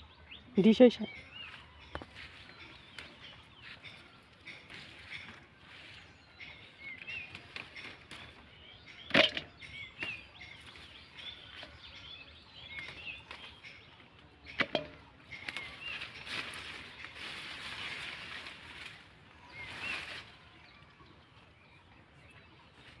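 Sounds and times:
birds chirping: 0.0 - 23.0
leaves rustling: 15.3 - 21.7.

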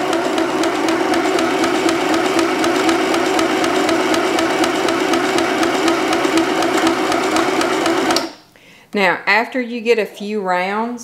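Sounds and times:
sewing machine motor whir: 0.0 - 8.3.

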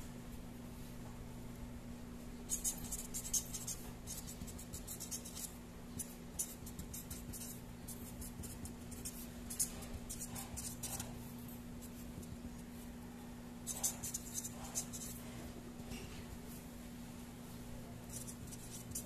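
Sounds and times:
steady low hum: 0.0 - 19.0
marker pen scratching on paper: 2.5 - 12.9, 13.6 - 15.4, 18.0 - 19.0.

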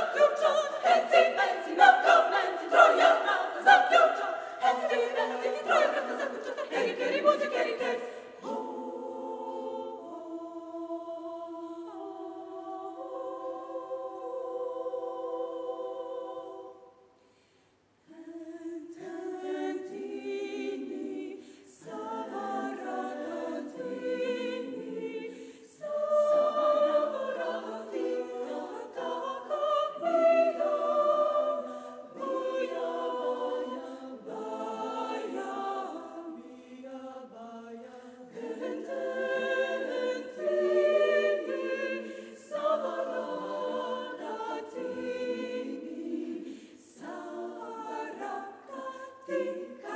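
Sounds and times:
women's choir singing: 0.0 - 17.2, 18.1 - 49.9
singers breathing: 17.2 - 17.8, 21.4 - 21.7, 25.3 - 25.7, 46.4 - 46.8.

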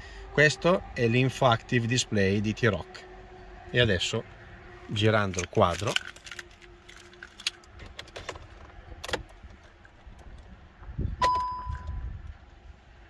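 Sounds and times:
car keys jangling: 5.2 - 10.5
dashboard warning chime: 11.2 - 12.0.

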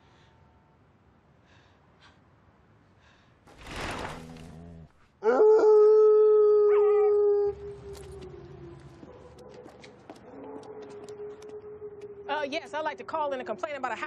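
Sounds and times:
hound howling: 5.2 - 9.5.

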